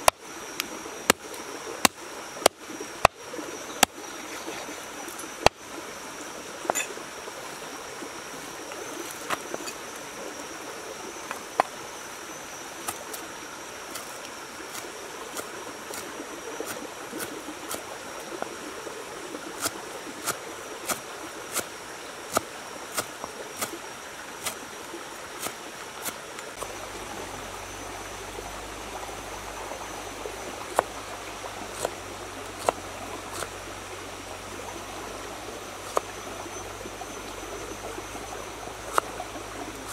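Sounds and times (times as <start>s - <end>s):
running stream water: 0.0s - 39.9s
cleaver chopping on wood: 32.6s - 32.8s.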